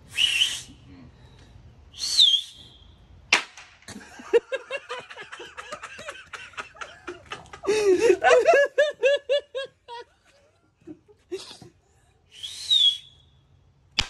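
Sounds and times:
hissing whistle: 0.1s - 0.7s, 1.9s - 3.0s, 12.4s - 13.2s
people laughing: 3.9s - 11.4s.

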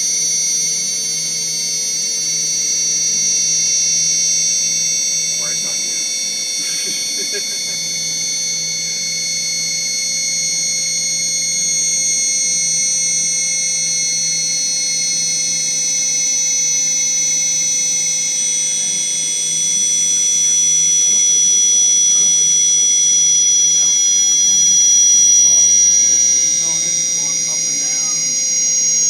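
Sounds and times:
high-pitched engine whine: 0.0s - 29.0s.

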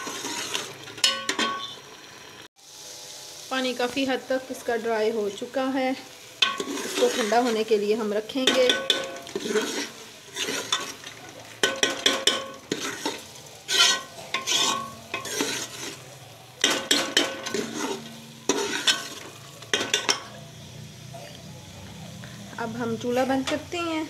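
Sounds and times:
spoon scraping pressure cooker: 0.0s - 1.7s, 6.4s - 7.7s, 8.4s - 16.0s, 16.6s - 20.4s
low sizzle: 0.0s - 24.0s.

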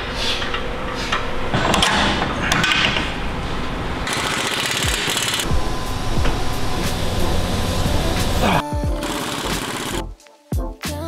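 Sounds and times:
impact wrench rattling: 4.0s - 5.5s, 9.0s - 10.0s.

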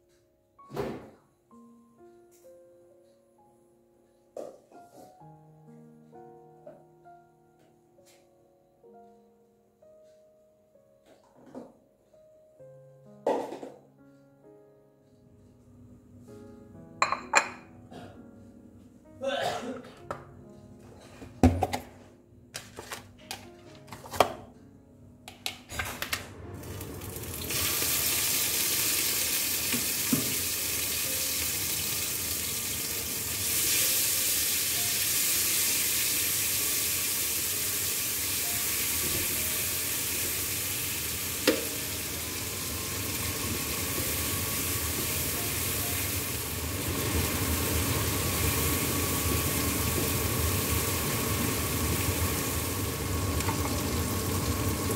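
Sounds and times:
food sizzling in a wok: 26.8s - 54.9s.

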